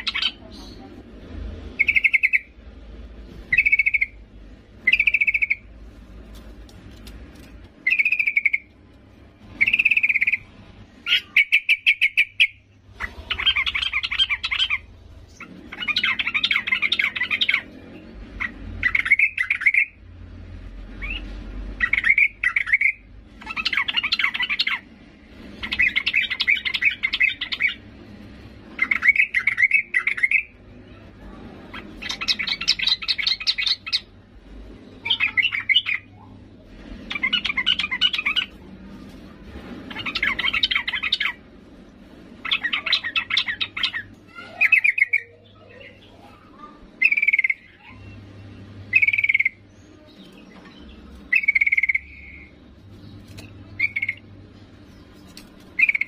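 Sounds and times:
bulbul calling: 3.5 - 4.2, 4.8 - 5.7, 7.8 - 8.7, 51.3 - 52.5, 55.8 - 56.0.

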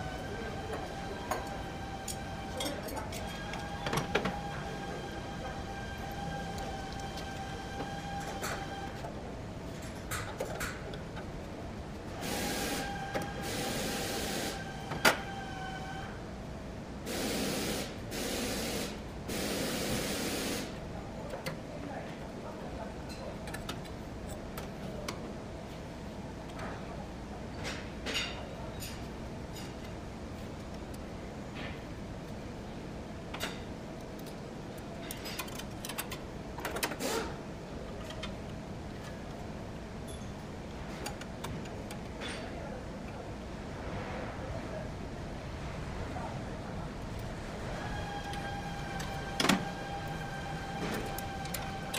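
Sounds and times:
low background noise: 0.0 - 51.9
air hissing bursts: 12.2 - 14.6, 17.1 - 20.8.

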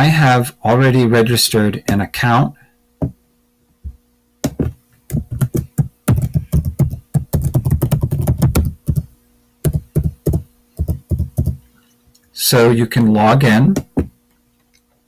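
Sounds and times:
keyboard typing: 5.1 - 11.6.

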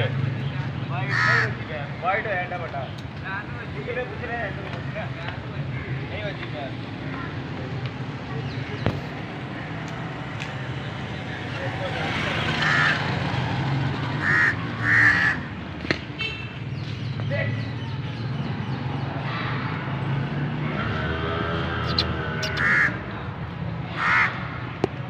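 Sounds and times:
harsh bird calls: 0.1 - 2.1, 10.6 - 24.8.

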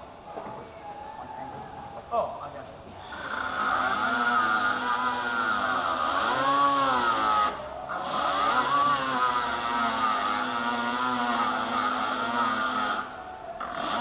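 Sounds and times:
handheld air tool running: 3.0 - 14.0.

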